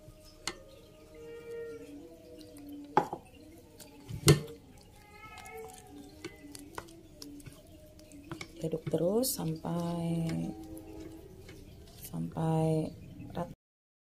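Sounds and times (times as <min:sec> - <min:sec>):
spoon stirring thick batter: 0:00.0 - 0:13.5
spoon knocking against bowl: 0:03.0 - 0:03.3.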